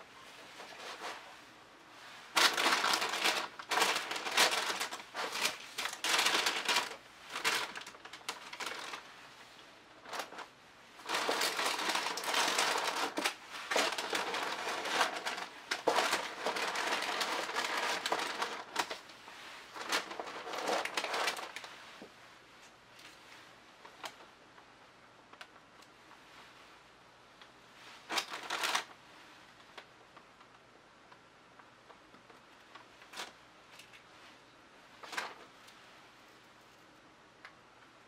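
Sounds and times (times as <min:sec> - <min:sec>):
plastic sheeting crinkling: 0:00.1 - 0:24.4, 0:27.7 - 0:30.6.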